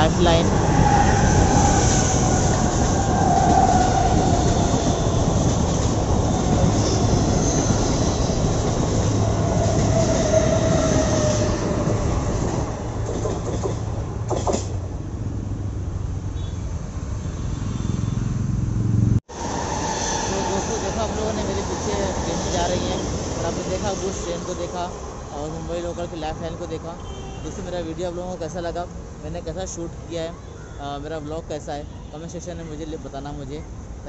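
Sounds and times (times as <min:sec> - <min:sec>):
train rumbling over track: 0:00.0 - 0:15.9, 0:18.8 - 0:27.0.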